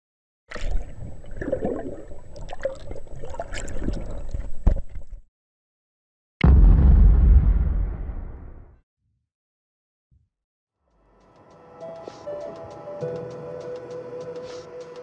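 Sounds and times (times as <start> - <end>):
water bubbling and gurgling: 0.5 - 5.2
deep ringing boom: 6.4 - 8.7.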